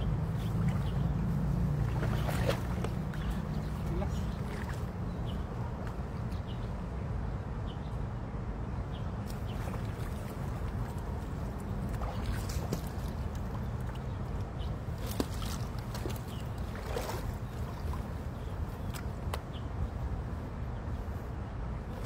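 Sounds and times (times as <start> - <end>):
small water splashes: 0.1 - 5.1, 9.2 - 19.6.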